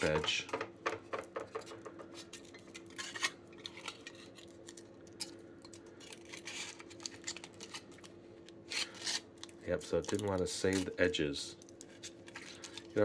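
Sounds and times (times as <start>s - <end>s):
faint steady hum: 0.0s - 13.0s
aluminium foil crinkling: 1.6s - 13.0s.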